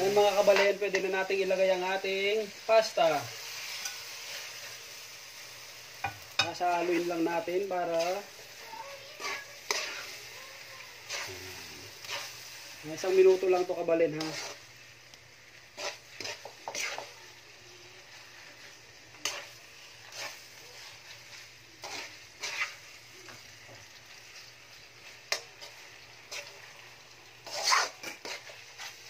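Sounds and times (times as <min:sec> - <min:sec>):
faint sizzle: 0:00.0 - 0:29.0
metal spatula scraping a wok: 0:03.1 - 0:04.9, 0:06.0 - 0:10.4, 0:11.0 - 0:14.8, 0:15.7 - 0:17.2, 0:18.1 - 0:23.4, 0:25.0 - 0:26.7, 0:27.3 - 0:29.0.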